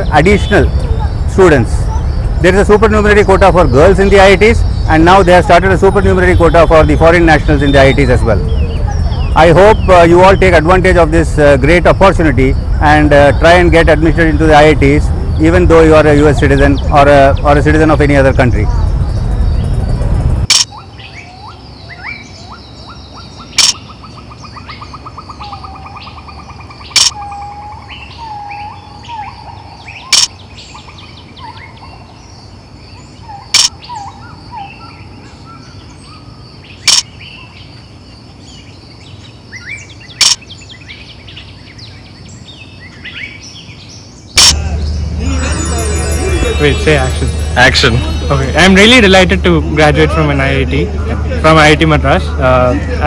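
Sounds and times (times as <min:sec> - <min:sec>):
birds chirping and calling: 0:00.0 - 0:53.0
sharp click: 0:20.5 - 0:20.7, 0:23.6 - 0:23.8, 0:27.0 - 0:27.2, 0:30.1 - 0:30.4, 0:33.6 - 0:33.8, 0:36.9 - 0:37.1, 0:40.2 - 0:40.4
steady high-pitched tone: 0:44.4 - 0:53.0.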